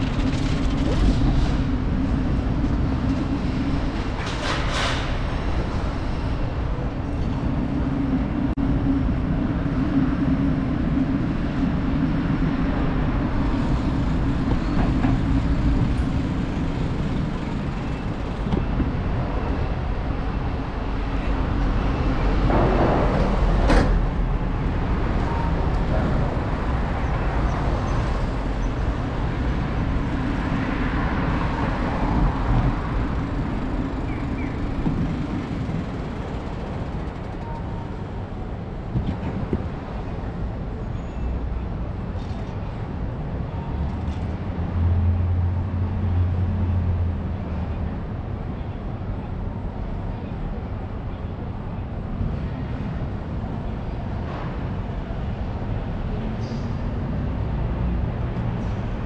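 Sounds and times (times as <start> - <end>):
low rumble of traffic: 0.0 - 59.0.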